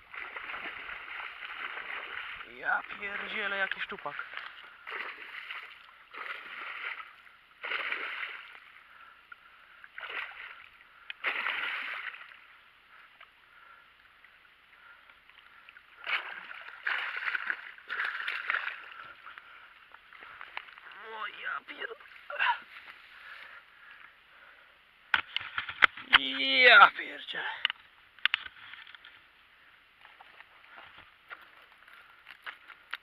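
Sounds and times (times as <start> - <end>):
fish splashing in water: 0.0 - 3.4.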